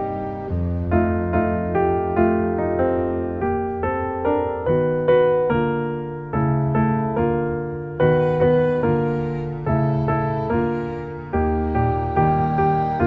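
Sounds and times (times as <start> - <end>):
gentle piano melody: 0.0 - 13.0.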